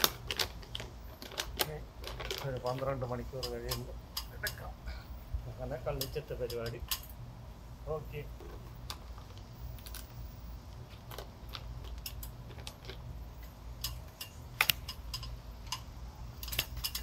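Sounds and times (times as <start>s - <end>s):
sharp clicks and knocks: 0.0s - 4.7s, 10.9s - 17.0s.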